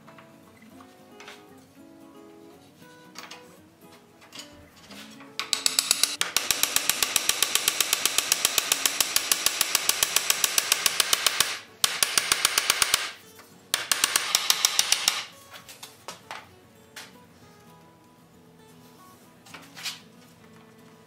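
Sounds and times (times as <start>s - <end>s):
small hammer tapping on metal: 5.4s - 13.2s, 13.8s - 15.4s.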